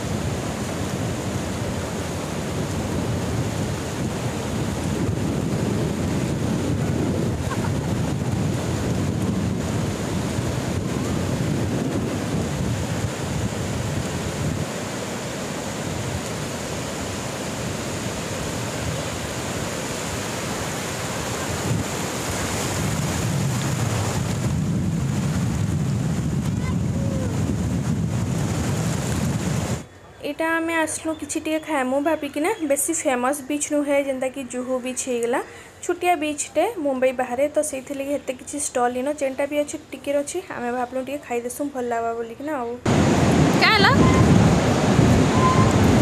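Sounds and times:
sea surf washing in: 0.0 - 29.9, 42.8 - 46.0
wind buffeting microphone: 0.0 - 29.9, 42.8 - 46.0.

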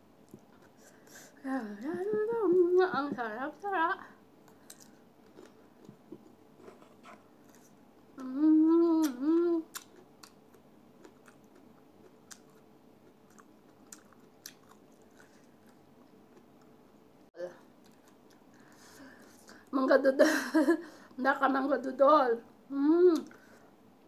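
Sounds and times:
mouth chewing soft fruit: 4.4 - 17.0, 17.6 - 19.7
person humming mmm: 8.2 - 9.8, 22.7 - 23.4.

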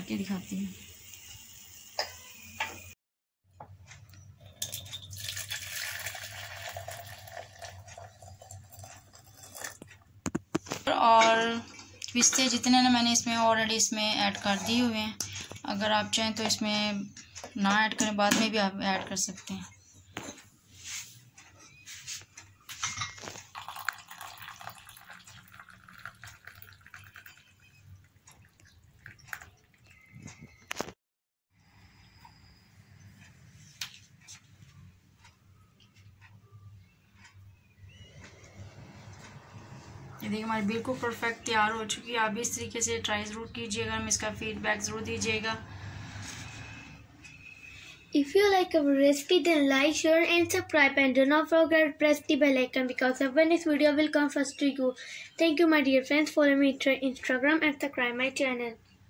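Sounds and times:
tea pouring into a glass teapot: 4.4 - 9.9, 23.2 - 30.0.

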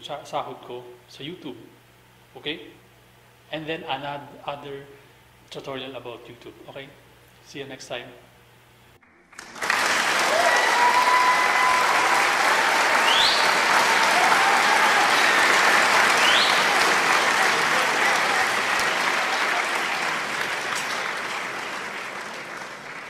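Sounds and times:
crowd applauding and cheering: 9.2 - 23.0
short rising whistles: 12.8 - 13.8, 16.1 - 16.7.

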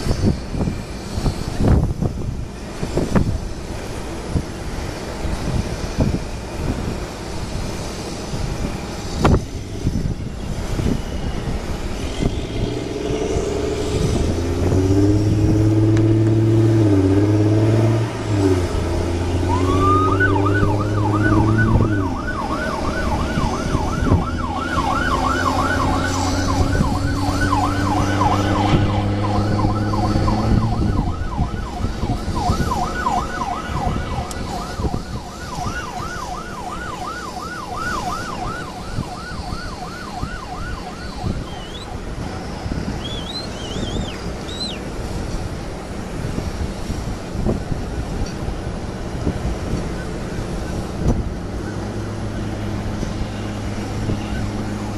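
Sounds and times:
engine drone: 0.0 - 54.9
emergency siren wailing and yelping: 11.6 - 45.1, 49.6 - 54.9.

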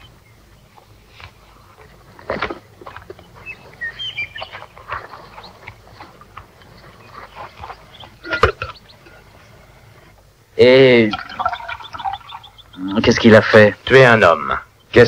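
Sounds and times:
bird chirps: 2.6 - 10.1, 11.1 - 13.8.

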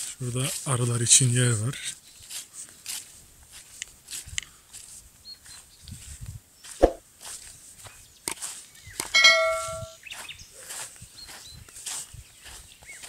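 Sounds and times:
footsteps on snowy path: 2.2 - 9.0, 10.0 - 13.0
loud metallic clang: 9.1 - 10.0.

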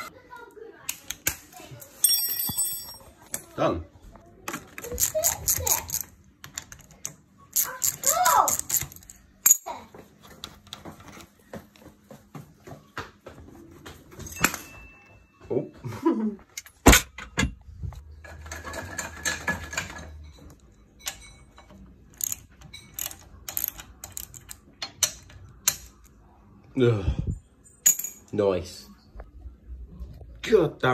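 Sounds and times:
metal tools clinking: 1.8 - 3.5, 4.8 - 9.8, 14.2 - 15.2, 18.2 - 26.1, 27.6 - 28.4.

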